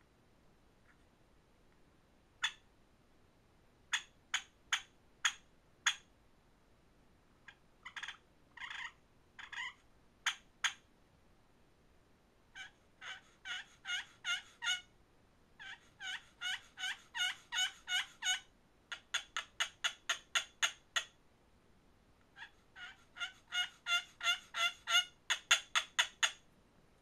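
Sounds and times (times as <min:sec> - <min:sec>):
turkey call yelps: 0:02.4 - 0:02.6, 0:07.5 - 0:10.8, 0:12.5 - 0:14.9, 0:15.6 - 0:21.1, 0:22.4 - 0:26.4.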